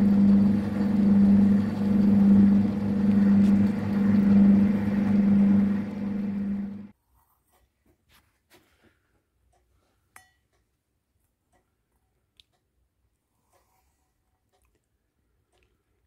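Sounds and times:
lathe motor hum and gear drone: 0.0s - 6.9s.

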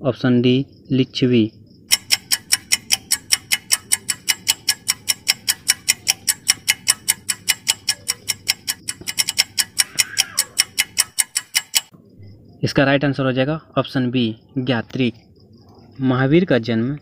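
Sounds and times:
countdown timer ticking: 1.9s - 11.9s.

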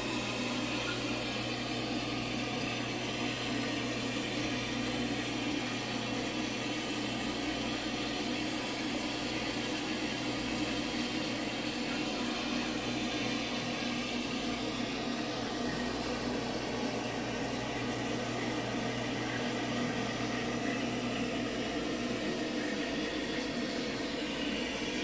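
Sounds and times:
machine humming and hissing: 0.0s - 25.0s.

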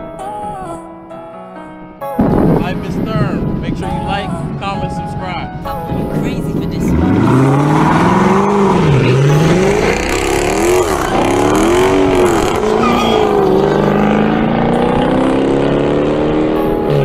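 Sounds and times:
car engine revving hard: 6.5s - 17.0s.

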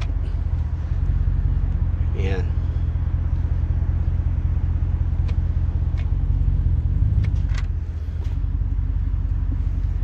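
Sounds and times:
car engine idling: 0.0s - 10.0s
faint clicks of shift dial: 5.2s - 6.2s.

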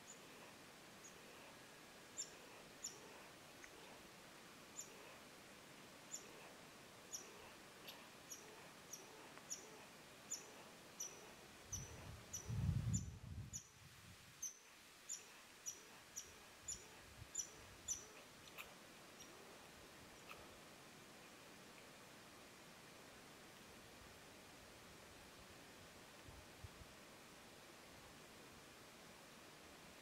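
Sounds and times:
small bird chirping: 2.1s - 4.0s, 6.1s - 13.8s, 14.4s - 19.6s, 20.2s - 20.5s.

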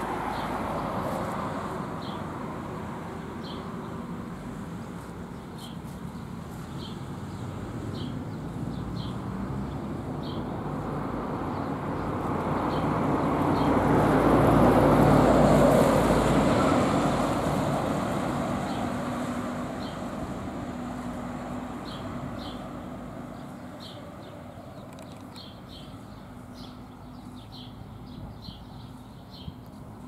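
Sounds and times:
heavy lorry driving past: 6.8s - 24.3s.

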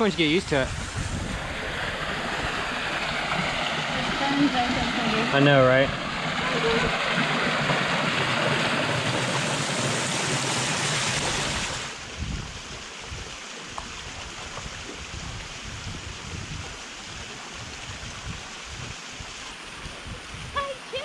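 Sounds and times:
wind rumble on microphone: 0.0s - 5.2s, 11.2s - 21.0s
waterfall splashing into pool: 0.0s - 21.0s.

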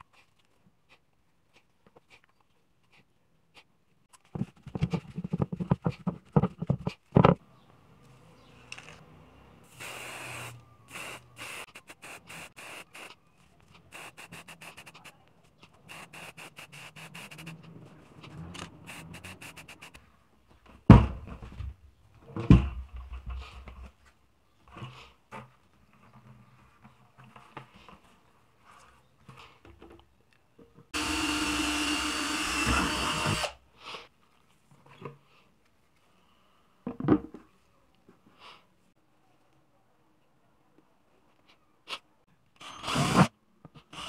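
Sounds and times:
spray paint can hissing: 9.7s - 13.1s, 13.9s - 15.1s, 15.8s - 17.6s, 18.9s - 20.0s.

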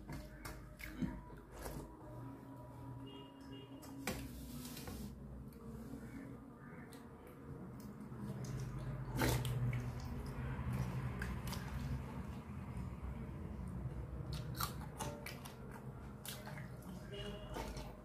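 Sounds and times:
chewing rice with crunching: 0.0s - 2.4s, 5.5s - 18.0s
wet mouth sounds: 7.8s - 12.1s.

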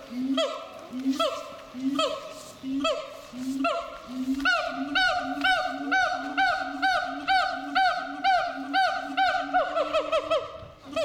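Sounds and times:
gibbon whooping calls: 4.4s - 11.0s.

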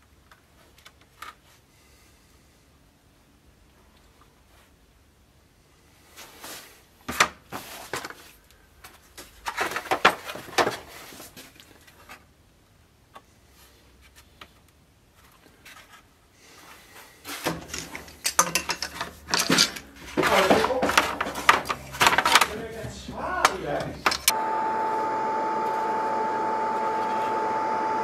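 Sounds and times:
wooden boards knocking: 18.4s - 24.3s
wood sliding scrapes: 18.9s - 23.2s.

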